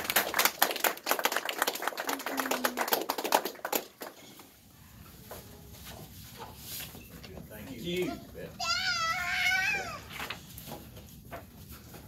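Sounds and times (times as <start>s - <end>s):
audience applauding: 0.0s - 4.4s.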